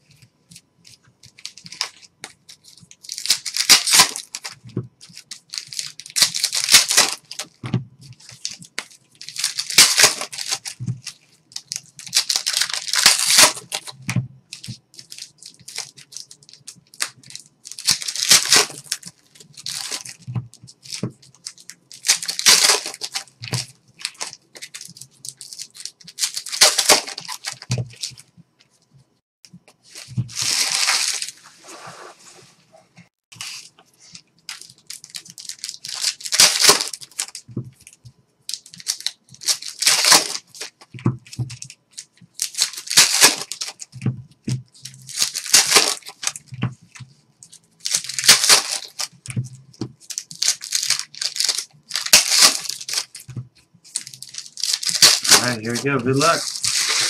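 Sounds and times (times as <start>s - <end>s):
wrappers tearing and crinkling: 0.5s - 28.3s, 29.9s - 31.8s, 33.3s - 57.0s
cards being handled: 33.3s - 57.0s.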